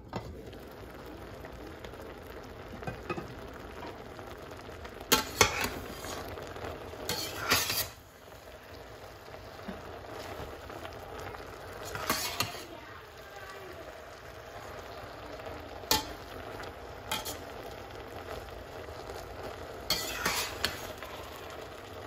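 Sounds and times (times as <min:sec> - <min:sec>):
hiss of simmering pot: 0:00.0 - 0:22.0
metal utensil stirring spinach: 0:05.1 - 0:08.1, 0:09.5 - 0:12.8, 0:15.7 - 0:18.4, 0:19.8 - 0:21.4
metal clatters against pan: 0:07.1 - 0:08.0, 0:11.9 - 0:12.7, 0:15.9 - 0:16.2, 0:17.1 - 0:17.5, 0:19.9 - 0:20.9.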